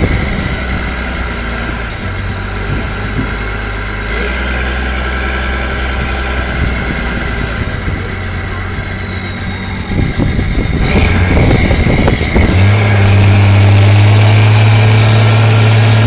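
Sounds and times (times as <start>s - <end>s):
high whine: 0.0s - 16.0s
truck engine running: 0.0s - 16.0s.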